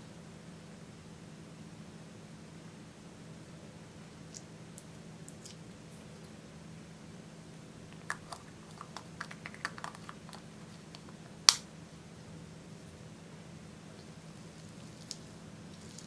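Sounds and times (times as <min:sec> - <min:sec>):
plastic cap snapping on: 0:08.0 - 0:10.4.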